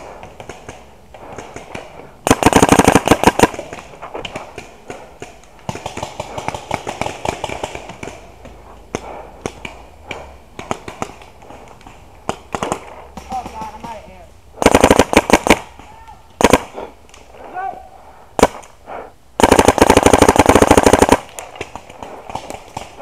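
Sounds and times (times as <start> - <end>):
paintball marker firing: 19.4 - 23.0.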